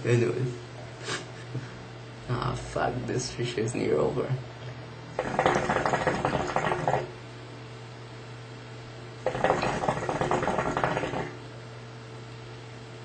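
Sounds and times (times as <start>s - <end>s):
hookah water bubbling: 5.1s - 7.2s, 9.2s - 11.5s.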